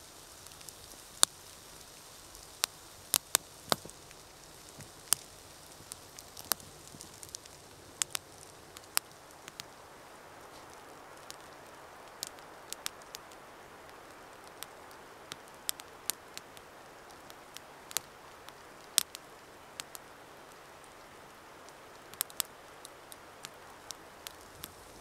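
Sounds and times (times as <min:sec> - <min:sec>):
wood fire crackling and popping: 0:00.0 - 0:25.0.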